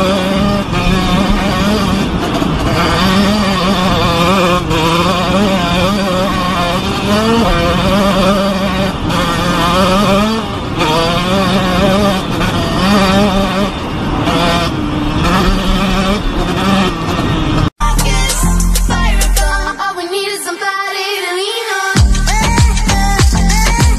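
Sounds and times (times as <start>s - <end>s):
dirt bike engine shifting gears: 0.0s - 17.7s
wind rush: 0.0s - 17.7s.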